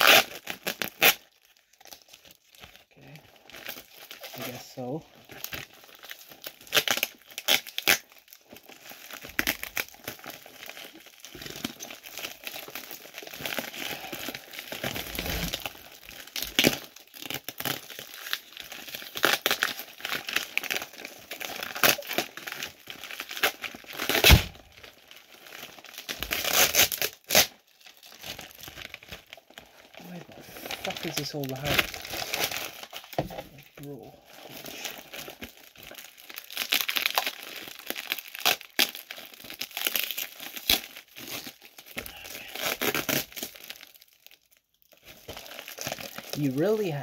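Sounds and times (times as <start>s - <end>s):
plastic wrap and paper crinkling: 0.0s - 47.0s
paper ripping: 14.8s - 15.8s, 23.2s - 24.6s.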